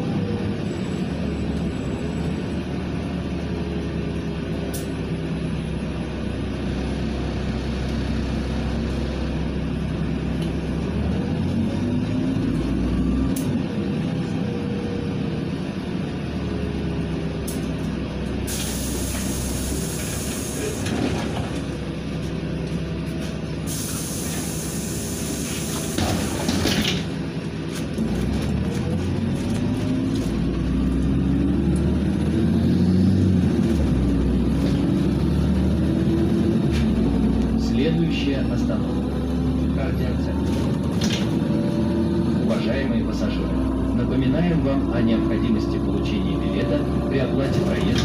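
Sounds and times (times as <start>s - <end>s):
bus engine and road noise: 0.0s - 48.0s
loud air hiss: 18.5s - 20.8s, 23.6s - 26.0s.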